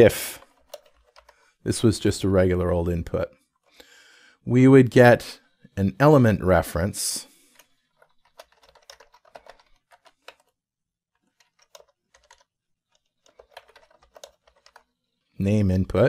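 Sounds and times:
faint keyboard typing: 0.0 - 2.2, 7.4 - 10.6, 11.2 - 15.4.

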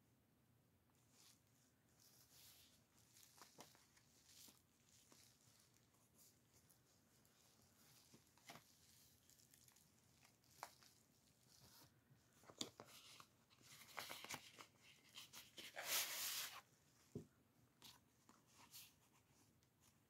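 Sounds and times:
paper and card rustling: 2.0 - 16.7.

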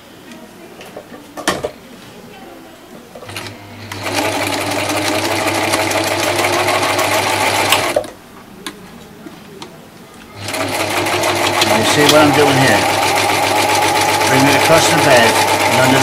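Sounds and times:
overlocker sewing machine running: 3.2 - 8.1, 10.3 - 16.0.

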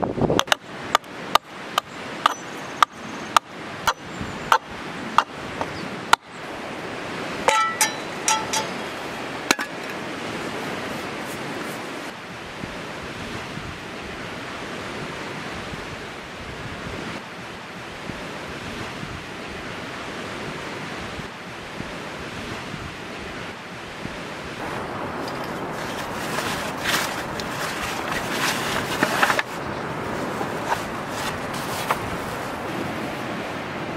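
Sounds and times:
lake waves on shore: 0.0 - 33.9
wind: 0.0 - 33.9
ringing clinks and knocks: 7.5 - 9.0.

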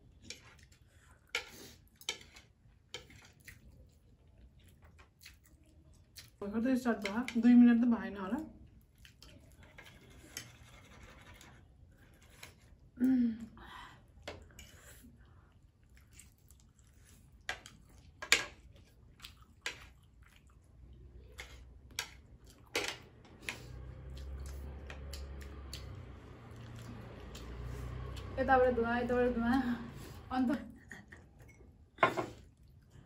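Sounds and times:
chopsticks and fork on plates: 0.0 - 3.7, 17.2 - 20.0, 21.2 - 25.9, 31.3 - 32.6
noodles chewed and slurped: 0.0 - 6.4, 8.6 - 13.0, 14.5 - 22.7, 23.3 - 28.4.

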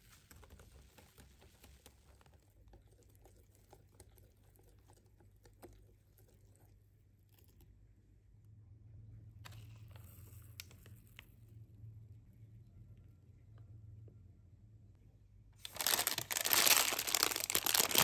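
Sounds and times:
soft swishing of batter: 0.0 - 8.1.

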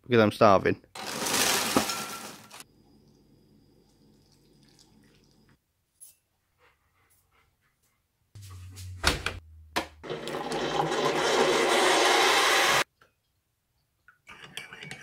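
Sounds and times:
low hum: 8.4 - 10.0
hot water gushing into mug: 10.1 - 12.8.

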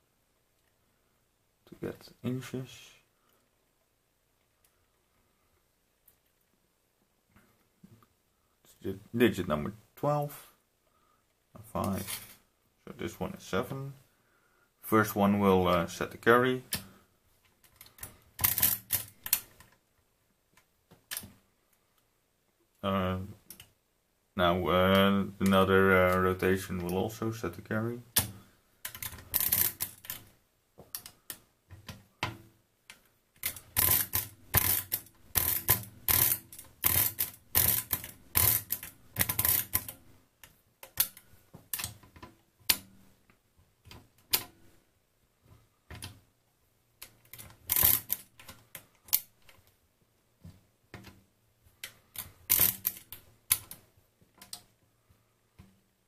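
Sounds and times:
mechanical calculator clicking: 33.4 - 39.9.

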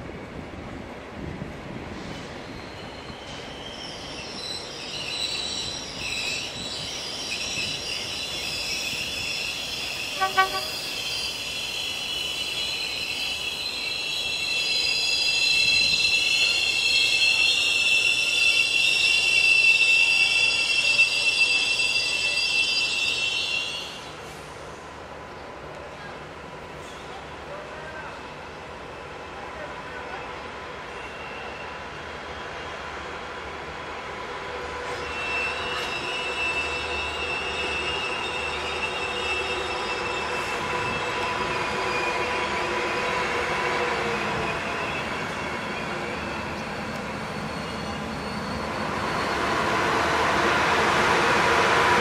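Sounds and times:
train wheels squealing on track: 1.8 - 24.9, 25.9 - 52.0
train horn toot: 10.1 - 10.9.

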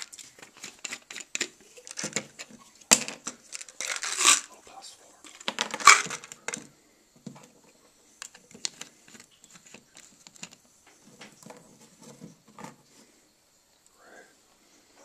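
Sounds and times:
plastic pill bottle clattering: 0.0 - 4.6, 5.3 - 7.6, 8.2 - 12.8.

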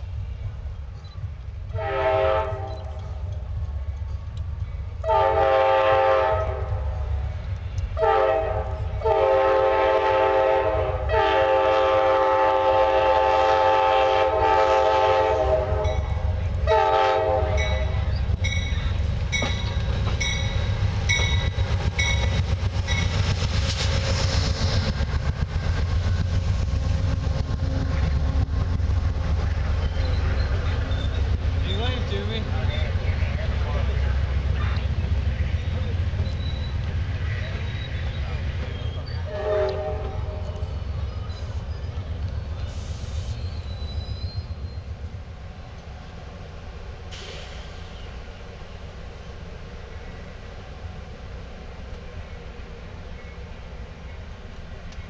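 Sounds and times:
locomotive air horn blasts: 1.7 - 2.9, 5.0 - 6.8, 8.0 - 18.0, 39.2 - 40.6
train wheels clacking on rails: 14.6 - 44.5
crossing bell dinging: 17.5 - 22.3.

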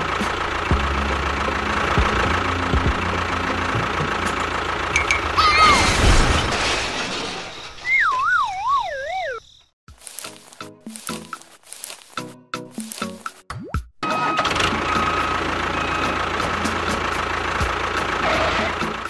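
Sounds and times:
engine running noise: 0.0 - 7.6, 14.0 - 19.0.

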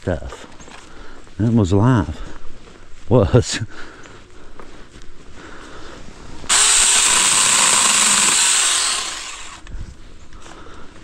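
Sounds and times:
mini chainsaw running: 6.5 - 9.6.

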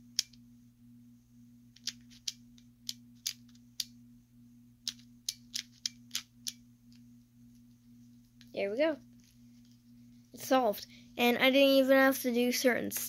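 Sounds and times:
low electrical hum: 0.0 - 13.0
plastic puzzle clicking: 1.8 - 3.9, 4.8 - 6.6.

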